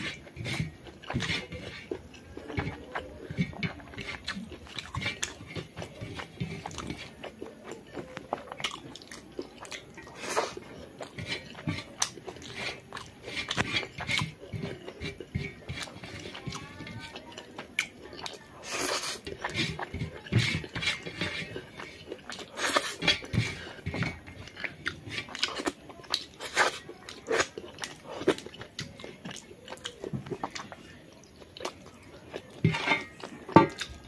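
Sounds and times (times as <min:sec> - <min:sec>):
person chewing and smacking: 0:00.0 - 0:34.0.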